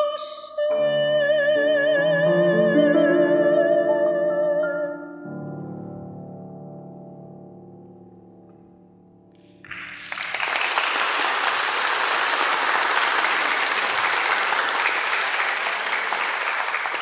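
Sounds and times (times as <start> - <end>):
audience applause: 9.6 - 17.0.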